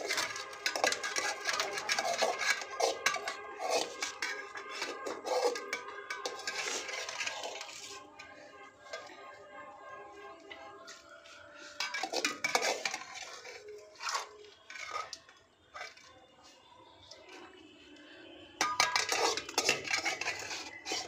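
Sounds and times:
metal spoon clinking on cookware: 0.0s - 9.1s, 11.8s - 16.0s, 18.6s - 21.0s.

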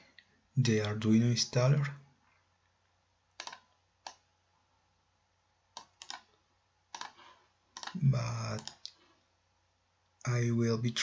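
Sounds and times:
computer mouse clicking: 3.4s - 4.2s, 5.7s - 9.0s.

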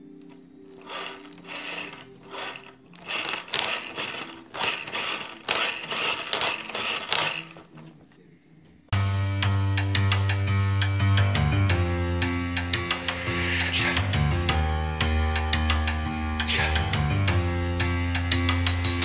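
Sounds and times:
soft background music: 0.0s - 5.6s
rc car gears whirring and grinding: 0.8s - 7.9s
guitar music: 9.0s - 19.0s.

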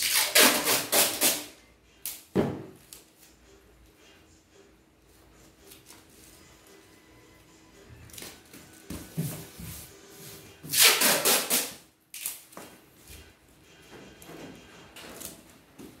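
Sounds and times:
packing tape ripped off roll: 0.0s - 2.2s, 10.6s - 12.6s.

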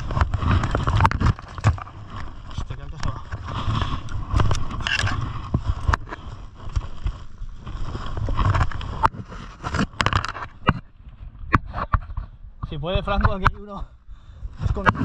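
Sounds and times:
footsteps on dry dirt: 0.0s - 10.6s
rustling gear: 0.0s - 10.7s
wind rumble on microphone: 0.0s - 15.0s.

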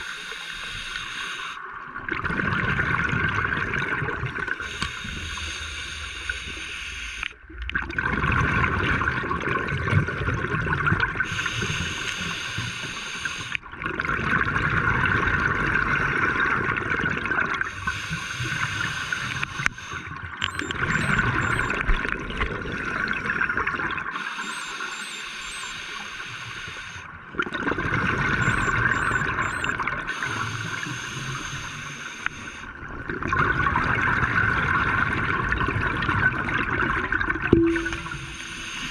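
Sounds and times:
diver inhaling through regulator: 0.0s - 1.6s, 4.6s - 7.3s, 11.2s - 13.6s, 17.7s - 21.7s, 24.1s - 27.1s, 28.5s - 32.7s, 37.8s - 38.9s
exhaled bubbles underwater: 0.0s - 38.9s.

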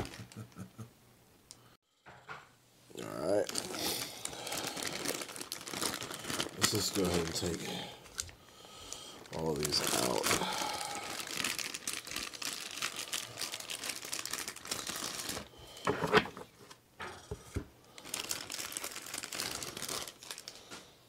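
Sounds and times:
plastic bag crinkling: 3.0s - 16.7s, 17.9s - 20.9s.

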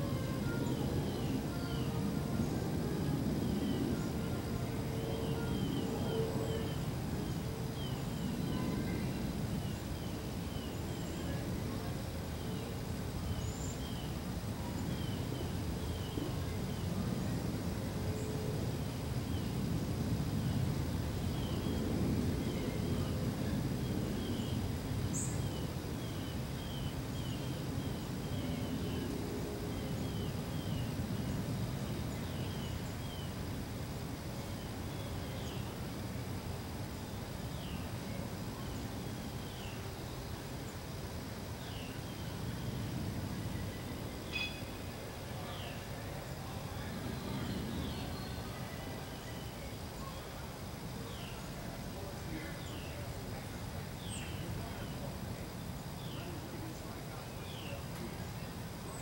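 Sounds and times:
higher bird chirp: 44.3s - 44.8s.

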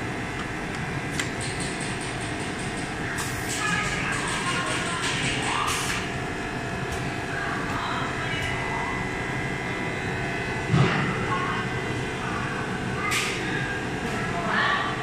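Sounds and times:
machine line humming: 0.0s - 15.0s.

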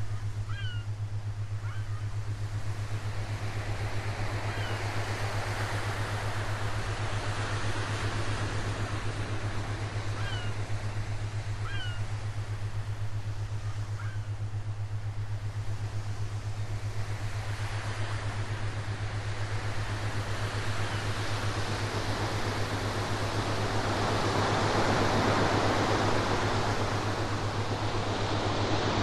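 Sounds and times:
constant low hum: 0.0s - 29.0s
ocean surf: 15.8s - 29.0s.

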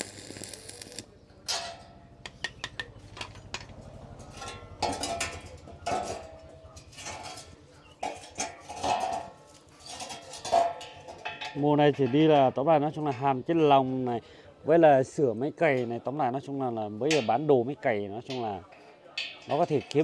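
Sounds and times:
metal tools clanking: 1.5s - 13.8s, 18.2s - 20.0s.

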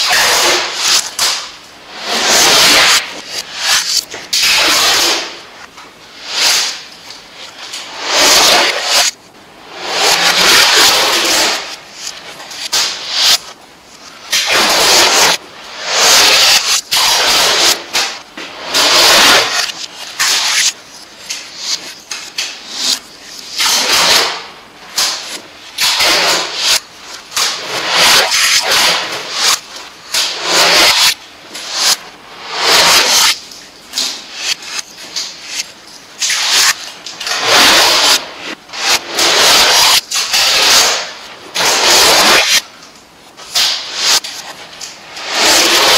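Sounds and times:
adhesive tape tearing: 25.0s - 29.6s.

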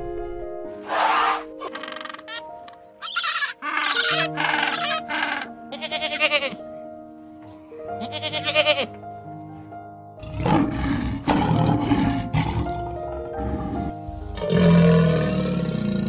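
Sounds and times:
background music: 0.0s - 16.0s
wavering bleating calls: 0.8s - 6.6s, 8.0s - 9.0s
lion growling: 10.2s - 16.0s.

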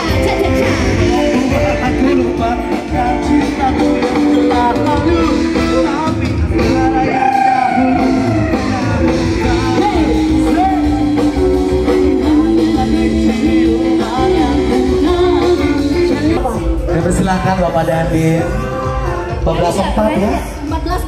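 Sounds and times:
woman singing into a microphone: 0.0s - 1.7s
electric guitar: 0.0s - 21.0s.

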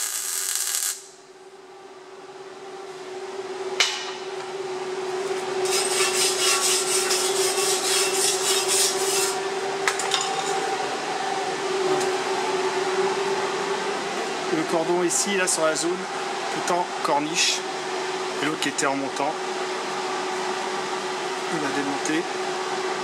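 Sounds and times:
steady hum: 0.0s - 23.0s
rhythmic scraping on steel: 5.6s - 9.4s.

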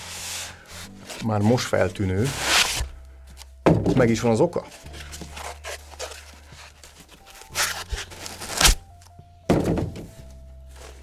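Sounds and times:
packaging rustling and thudding: 3.7s - 8.9s, 9.5s - 11.0s.

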